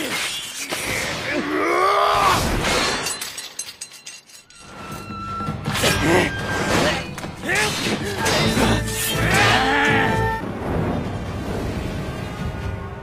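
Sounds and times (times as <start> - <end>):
sword blades clashing: 5.7 - 10.2.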